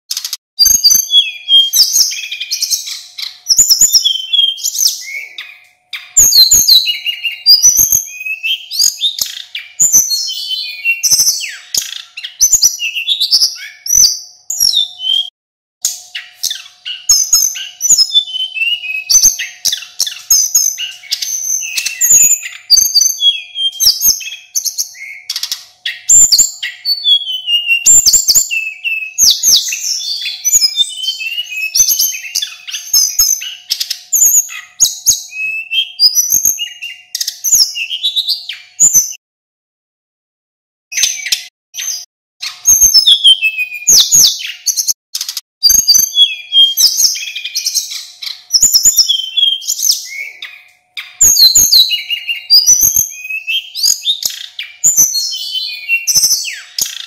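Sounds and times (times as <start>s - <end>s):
bird whistles and trills: 0.1s - 39.2s, 40.9s - 57.0s.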